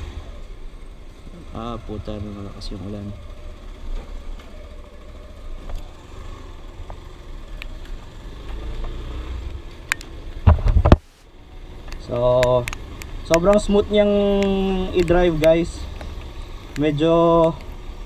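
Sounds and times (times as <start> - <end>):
motorcycle engine running: 0.0 - 18.0
loud thumps: 10.4 - 11.0.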